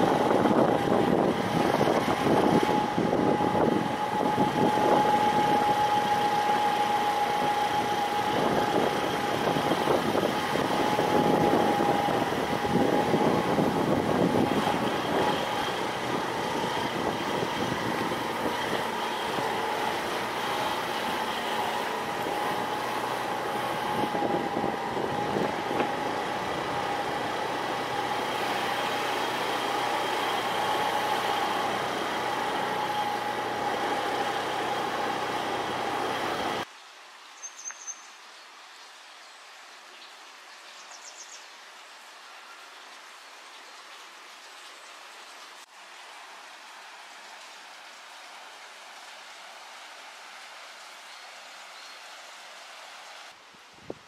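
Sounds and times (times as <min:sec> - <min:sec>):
engine running with high whine: 0:00.0 - 0:36.7.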